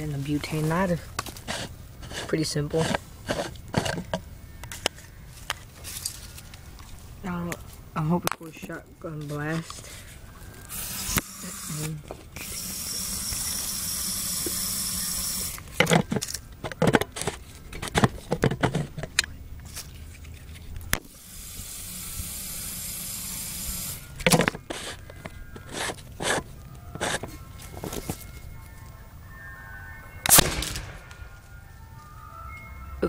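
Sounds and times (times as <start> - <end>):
aerosol can spraying hiss: 21.2 - 24.1.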